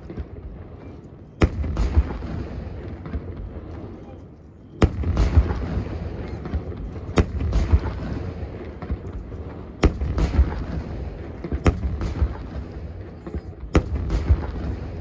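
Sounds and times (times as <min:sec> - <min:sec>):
fireworks bangs: 0:00.0 - 0:04.2, 0:04.8 - 0:15.0
low rumble of booms: 0:04.8 - 0:15.0.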